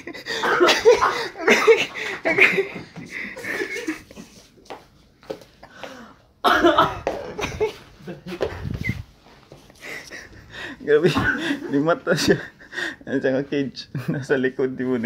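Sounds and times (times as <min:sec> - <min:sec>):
people laughing: 0:00.0 - 0:04.5, 0:06.5 - 0:08.9, 0:09.8 - 0:13.0.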